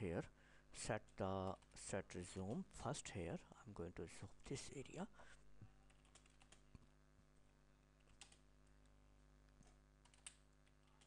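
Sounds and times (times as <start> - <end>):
steady low hum: 0.0 - 11.0
computer keyboard and mouse clicks: 5.9 - 6.6, 8.0 - 8.4, 9.6 - 11.0.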